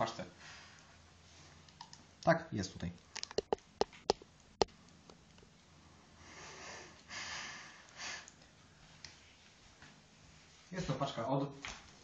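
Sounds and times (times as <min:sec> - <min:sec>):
camera handling clicks and taps: 0:03.2 - 0:04.2
breathy sniffs: 0:06.2 - 0:08.3.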